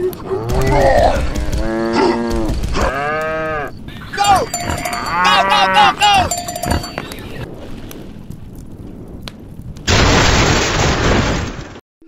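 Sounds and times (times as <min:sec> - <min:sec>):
cow mooing: 0:04.3 - 0:07.0.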